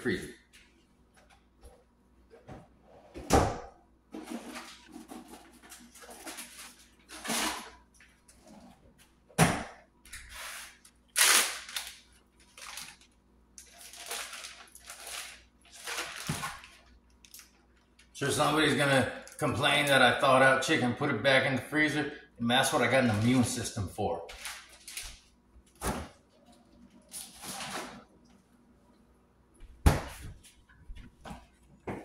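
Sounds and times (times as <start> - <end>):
plastic bag crinkling: 11.2 - 17.6, 24.4 - 25.3.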